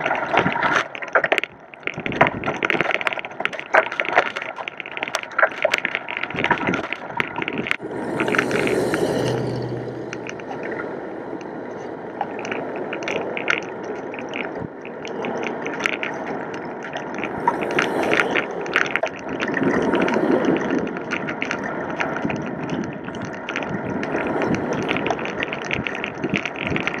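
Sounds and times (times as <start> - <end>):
bicycle tyres rolling over gravel: 0.0 - 27.0
rushing wind noise: 0.0 - 27.0
bike clicks and rattles: 11.4 - 27.0.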